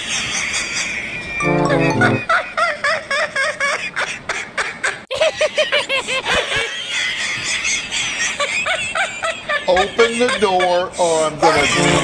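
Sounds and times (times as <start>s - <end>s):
music: 1.4s - 2.3s, 11.7s - 12.0s.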